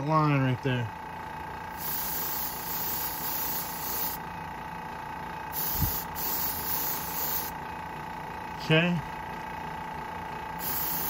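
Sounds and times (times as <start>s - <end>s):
airbrush spraying hiss: 1.8s - 4.2s, 5.6s - 7.5s, 10.6s - 11.0s.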